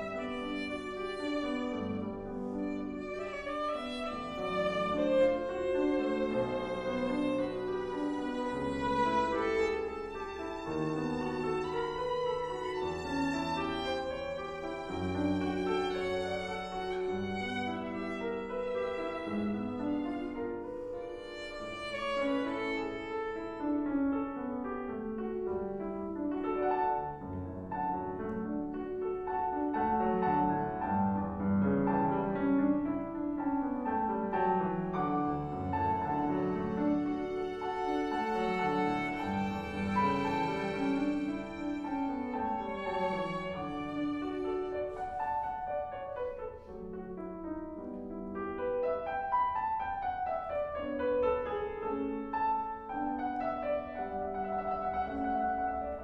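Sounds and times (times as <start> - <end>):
grand piano: 0.0 - 56.0
violin melody: 0.0 - 56.0.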